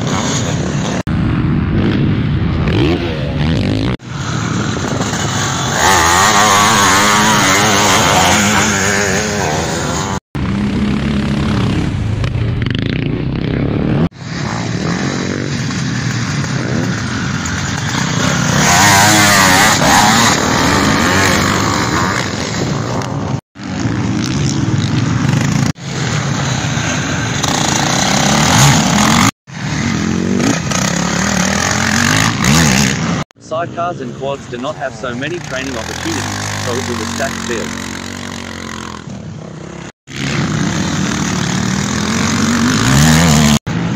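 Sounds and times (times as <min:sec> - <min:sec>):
motocross bike engine: 0:00.0 - 0:43.9
quad engine: 0:00.0 - 0:43.9
sidecar engines revving: 0:13.8 - 0:43.9.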